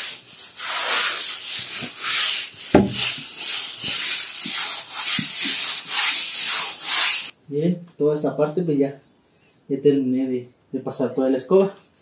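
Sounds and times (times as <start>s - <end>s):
broom scrubbing wet cement floor: 0.0s - 7.3s
sharp knock: 2.7s - 3.2s.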